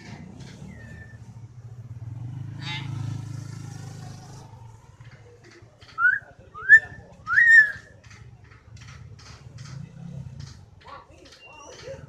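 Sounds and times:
motorcycle engine passing: 0.0s - 8.4s
myna whistling rising notes: 6.0s - 7.9s.

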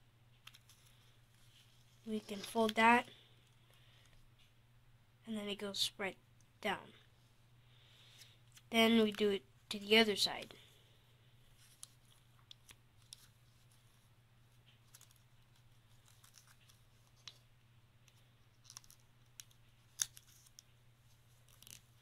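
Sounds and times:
paper crinkling and creasing: 0.5s - 2.9s, 11.5s - 22.0s.

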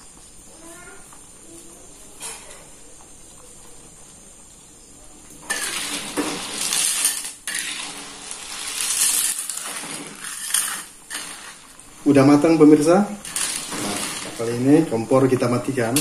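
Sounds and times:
metal spoon scraping a pot: 5.4s - 11.6s.

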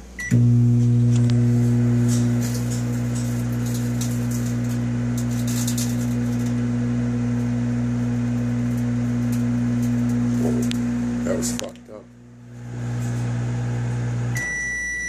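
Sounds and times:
microwave oven humming: 0.0s - 15.0s
electrical arcing crackles: 1.0s - 6.7s, 8.3s - 11.9s.

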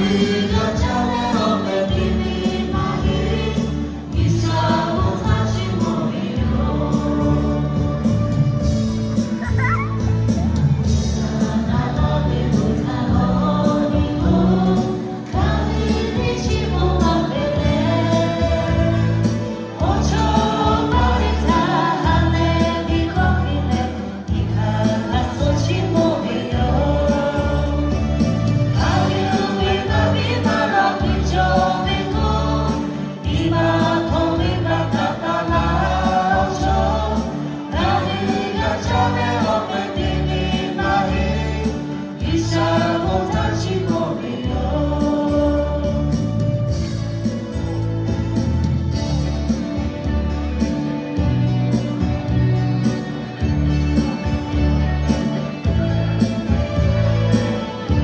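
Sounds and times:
mixed choir singing: 0.0s - 8.4s, 10.8s - 46.5s
amplified band with keyboard: 0.0s - 58.0s.

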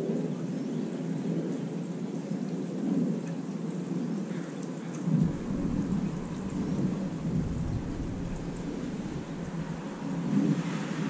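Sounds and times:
steady rain: 0.0s - 11.0s
deep rumble: 5.1s - 10.8s.

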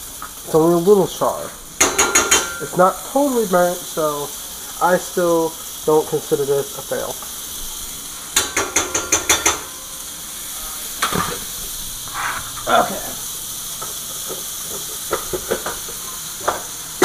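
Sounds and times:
chicken sizzling in a pan: 0.0s - 17.0s
pots and utensils clattering: 1.8s - 2.9s, 8.3s - 10.1s, 10.9s - 13.2s, 13.8s - 17.0s.

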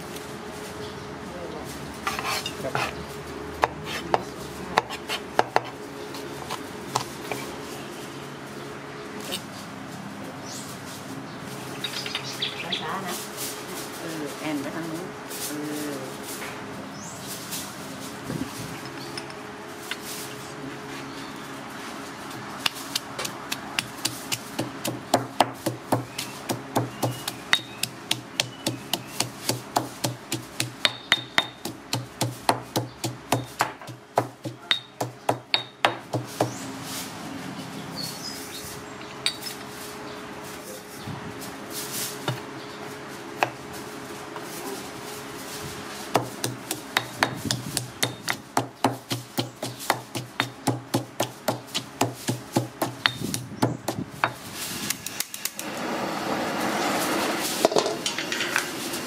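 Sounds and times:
stone pestle pounding in mortar: 22.6s - 36.6s, 46.1s - 54.4s.

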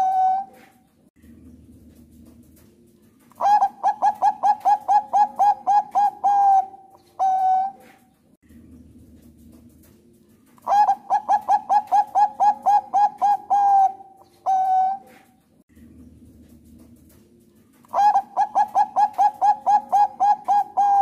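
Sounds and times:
dove cooing: 0.0s - 0.7s, 3.3s - 8.0s, 10.6s - 15.3s, 17.8s - 21.0s.

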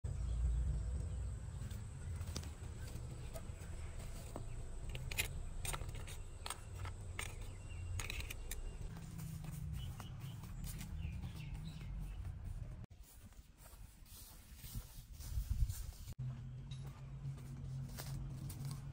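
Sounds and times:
sharp clicks: 4.8s - 8.9s.

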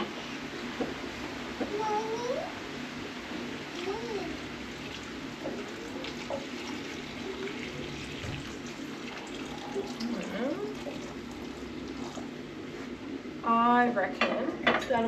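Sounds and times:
liquid simmering: 3.4s - 12.7s.

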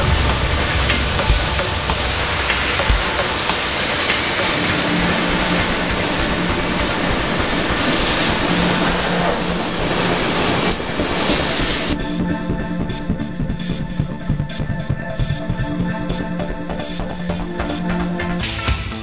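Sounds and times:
laser cutter gas jet hissing: 0.0s - 12.0s.

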